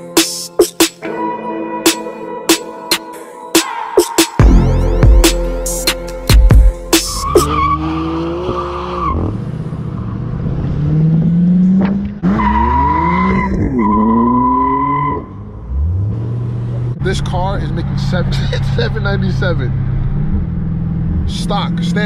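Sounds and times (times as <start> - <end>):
car engine revving: 6.9 - 22.0.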